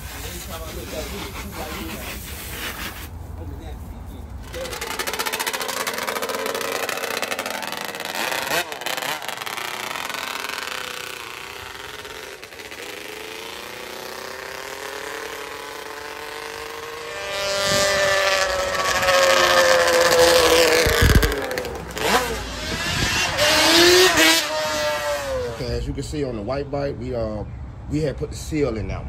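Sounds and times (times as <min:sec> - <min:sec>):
quad engine revving: 0:04.4 - 0:25.8.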